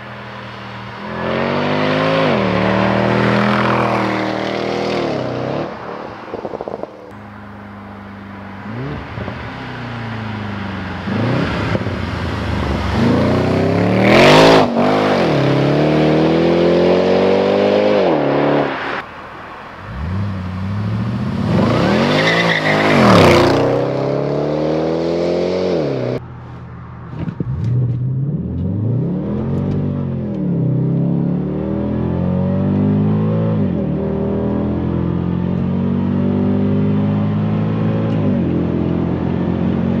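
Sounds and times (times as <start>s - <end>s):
car engine revving hard: 12.6s - 18.7s.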